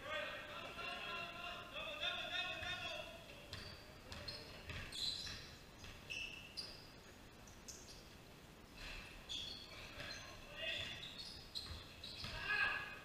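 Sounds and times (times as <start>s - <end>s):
basketball bouncing: 3.5s - 6.1s, 10.8s - 12.5s
sneakers squeaking on gym floor: 3.5s - 8.2s, 8.8s - 12.7s.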